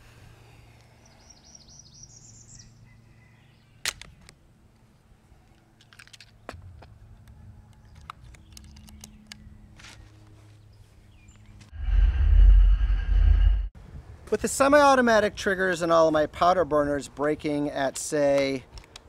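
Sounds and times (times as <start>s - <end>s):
bird chirping: 1.0s - 3.8s.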